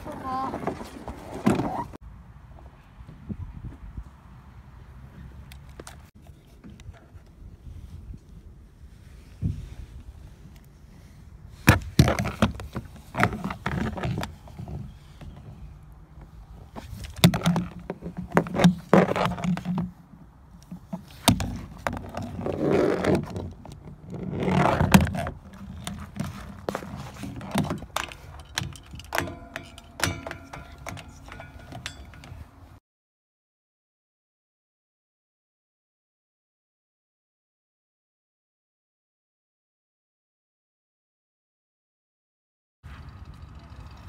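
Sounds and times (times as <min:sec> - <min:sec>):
toy figures knocking and scraping: 0:11.6 - 0:15.6, 0:16.2 - 0:32.6.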